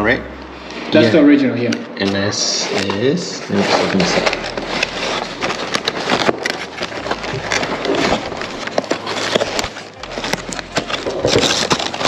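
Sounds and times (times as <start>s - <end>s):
cardboard box scraping and rustling: 2.7s - 12.0s.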